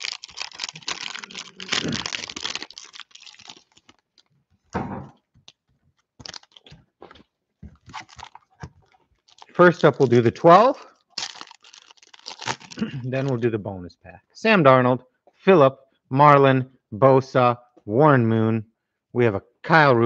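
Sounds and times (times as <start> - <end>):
plastic wrapper crinkling and tearing: 0.0 - 4.4, 5.4 - 13.4
thump on table: 4.7 - 5.2.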